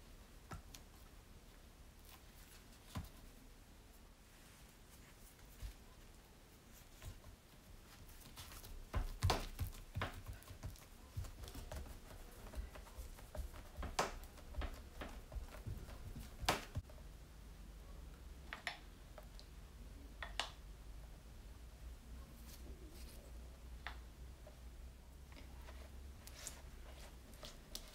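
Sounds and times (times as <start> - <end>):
hands patting dough on a mat: 0.4 - 1.1, 2.0 - 3.4, 4.4 - 16.9.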